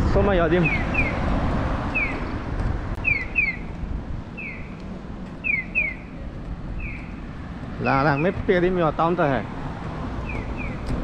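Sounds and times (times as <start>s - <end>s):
low street rumble: 0.0s - 11.0s
wind noise on microphone: 0.0s - 11.0s
pedestrian crossing signal chirping: 0.5s - 2.4s, 3.0s - 8.8s, 10.1s - 11.0s.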